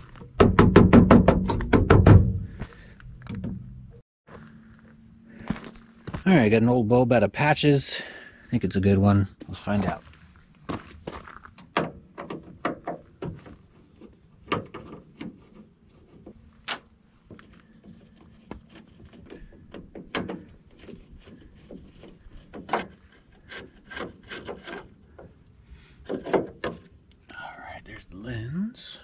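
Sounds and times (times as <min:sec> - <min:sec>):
rubbing and scraping: 0:09.6 - 0:27.1.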